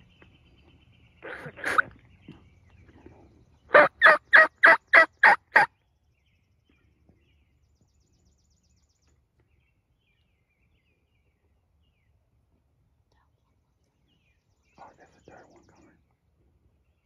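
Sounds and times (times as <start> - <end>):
turkey yelps: 1.2 - 1.9, 3.7 - 5.7.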